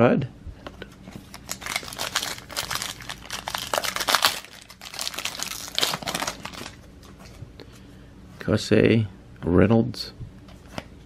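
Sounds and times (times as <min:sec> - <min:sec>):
plastic wrapper crinkling: 0:01.3 - 0:06.9.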